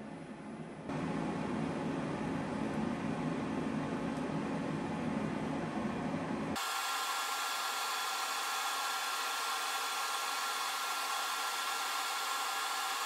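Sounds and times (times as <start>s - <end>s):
small cooling fan whirring: 0.0s - 13.0s.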